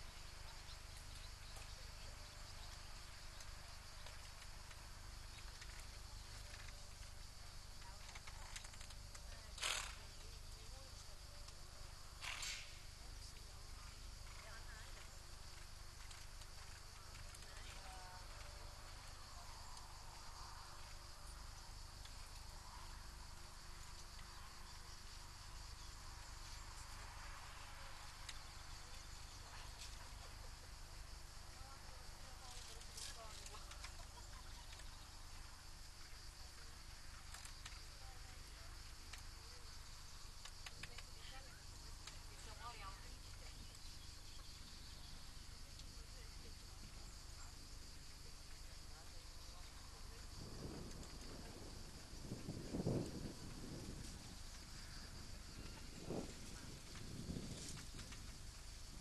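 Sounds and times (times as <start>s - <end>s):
insects droning: 0.0s - 59.0s
faint ticks: 14.2s - 20.2s, 20.8s - 27.0s, 28.0s - 30.4s, 31.6s - 44.6s, 55.6s - 58.7s.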